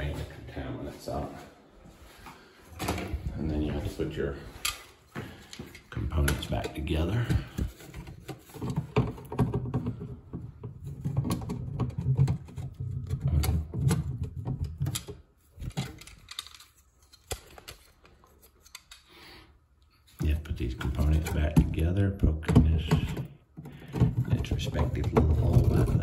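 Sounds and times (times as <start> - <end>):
plastic parts clicking and rattling: 5.5 - 19.1, 22.5 - 26.0.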